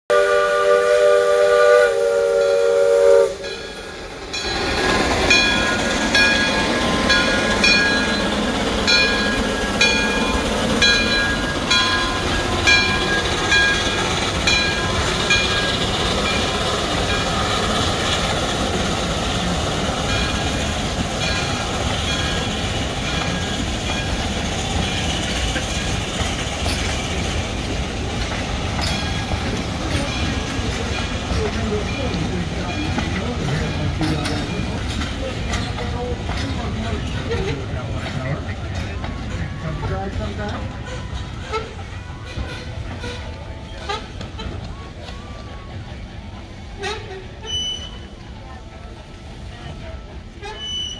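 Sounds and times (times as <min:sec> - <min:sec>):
steam whistle: 0:00.1 - 0:03.6
train clattering on rails: 0:00.1 - 0:50.9
locomotive bell ringing: 0:02.4 - 0:46.0.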